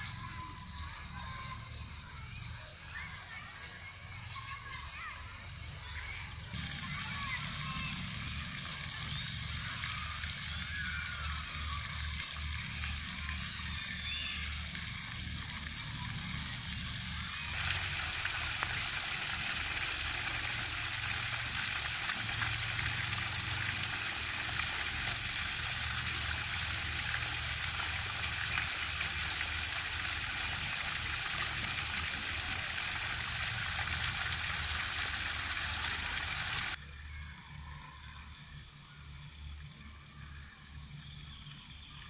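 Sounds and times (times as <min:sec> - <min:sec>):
fountain splashing onto water: 0:06.0 - 0:36.8.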